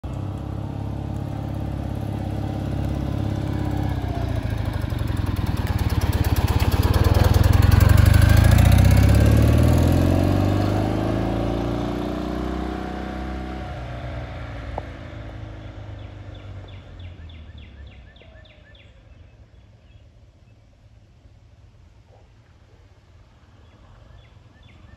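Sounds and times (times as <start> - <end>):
motorcycle engine passing: 0.0 - 19.2.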